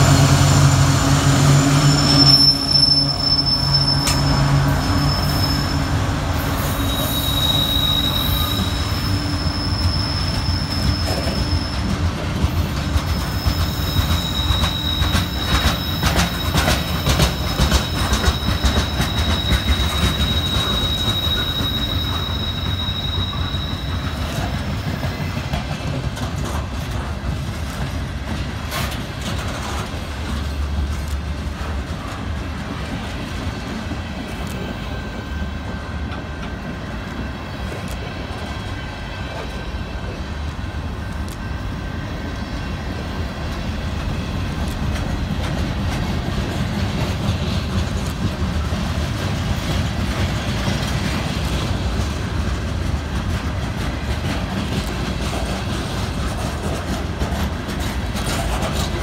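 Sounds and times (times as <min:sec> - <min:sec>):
diesel locomotive engine: 0:00.0 - 0:59.0
high squealing train brakes: 0:00.0 - 0:59.0
wheels clicking over rail joints: 0:08.6 - 0:34.7, 0:42.9 - 0:59.0.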